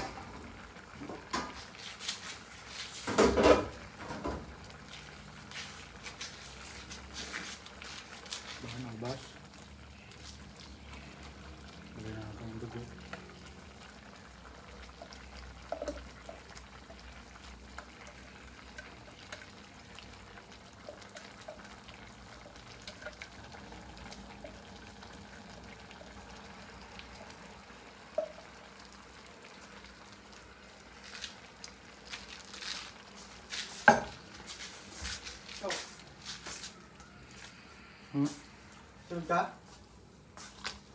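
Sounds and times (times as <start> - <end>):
liquid trickling: 6.6 - 34.0.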